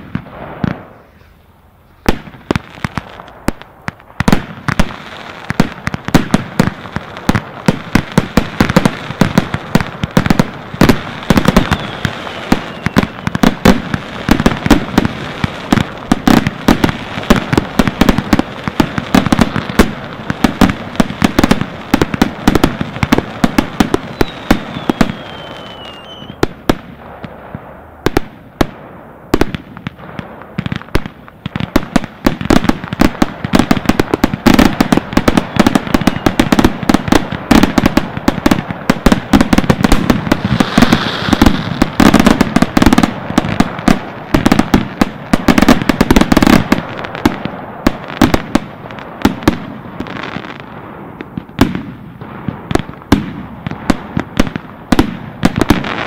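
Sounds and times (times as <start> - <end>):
fireworks bangs and crackling: 0.0 - 56.0
falling whistle: 11.7 - 13.2, 24.1 - 26.4, 36.0 - 36.4.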